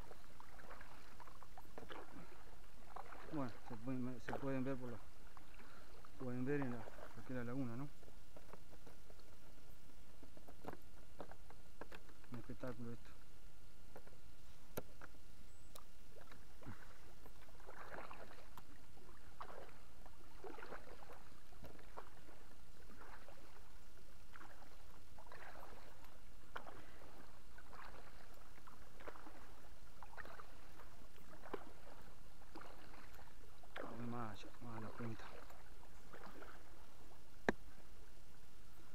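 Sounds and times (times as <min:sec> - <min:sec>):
paddle splashing in water: 0:00.0 - 0:13.0, 0:13.9 - 0:38.1.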